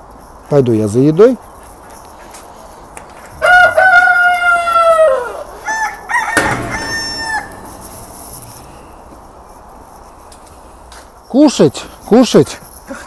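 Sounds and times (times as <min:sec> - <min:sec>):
rooster crowing: 0:03.4 - 0:08.9.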